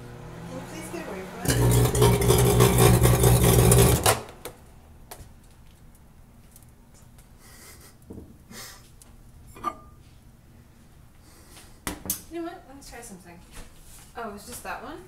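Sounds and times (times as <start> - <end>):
microwave oven humming: 0.0 - 4.4.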